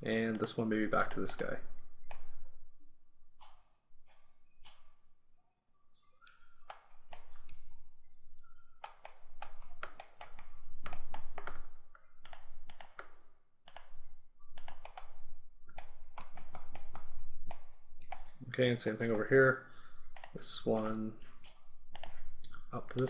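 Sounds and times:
mouse and keyboard clicks: 0.3s - 2.4s, 3.4s - 5.0s, 6.3s - 7.6s, 8.4s - 19.2s, 20.1s - 23.0s.

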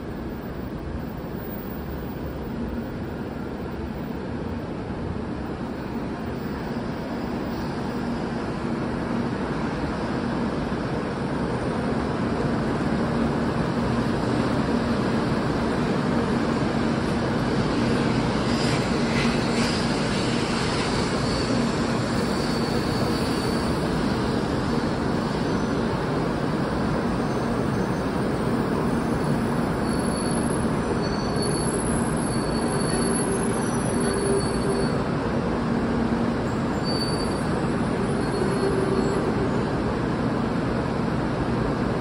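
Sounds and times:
train wheels rolling rumble: 0.0s - 42.0s
faint high squeals: 20.6s - 23.9s, 27.1s - 35.0s, 36.5s - 39.6s.

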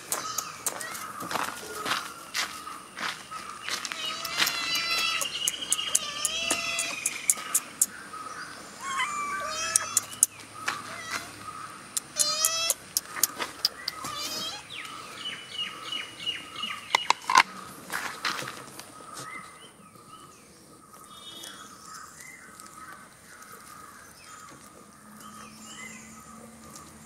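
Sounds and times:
birds chirping: 0.0s - 27.0s
sharp clicks: 4.1s - 8.0s, 9.7s - 10.4s, 11.9s - 14.1s.

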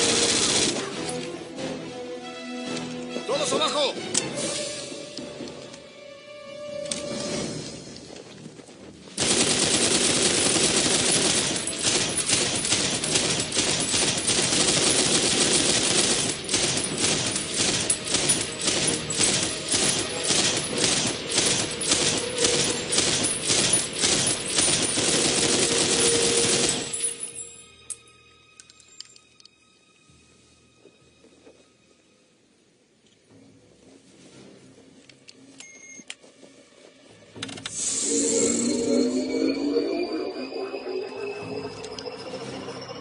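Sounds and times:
machine gun firing: 0.0s - 1.0s, 9.2s - 26.9s.

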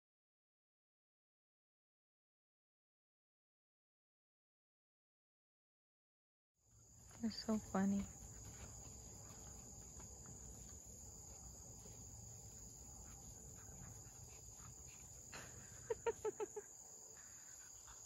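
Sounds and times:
insect chorus: 6.6s - 18.0s
cricket trilling: 6.7s - 18.0s.

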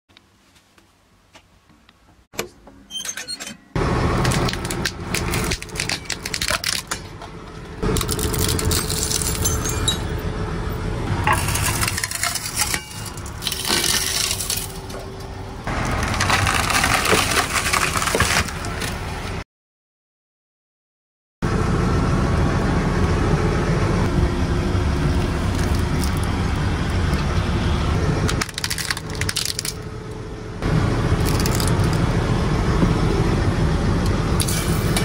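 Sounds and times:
train wheel crushing objects: 3.8s - 10.3s, 11.0s - 19.3s, 28.3s - 29.9s, 30.6s - 33.0s
cracking and breaking: 4.1s - 10.0s, 11.3s - 19.0s, 28.3s - 29.8s, 31.2s - 32.1s.

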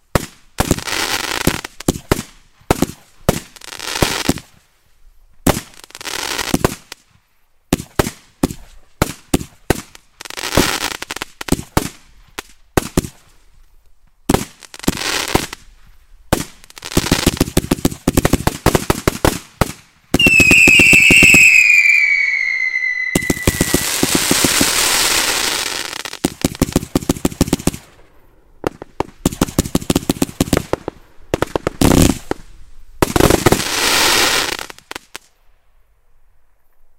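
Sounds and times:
firework crackling: 14.3s - 35.3s
firework launches and bangs: 17.4s - 25.7s
falling firework whistle: 20.2s - 25.9s.

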